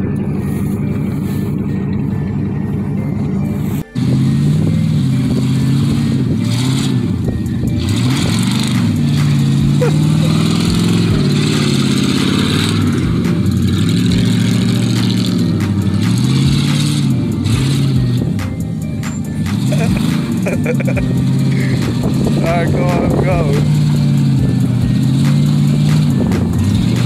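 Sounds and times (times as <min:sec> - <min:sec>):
tyres spinning in snow: 0:00.0 - 0:18.2
truck engine revving: 0:00.0 - 0:27.0.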